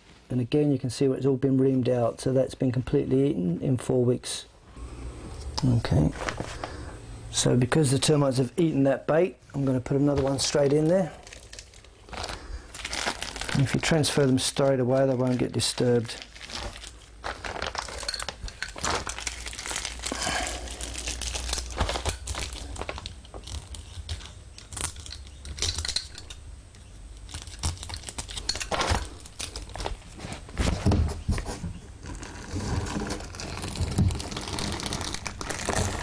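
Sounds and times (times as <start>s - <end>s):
plastic bag crinkling: 9.6s - 26.4s, 27.2s - 30.2s, 32.1s - 36.0s.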